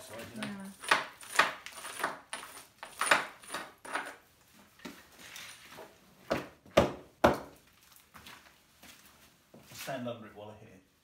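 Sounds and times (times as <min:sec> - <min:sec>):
hammer striking stone wall: 0:06.3 - 0:07.6.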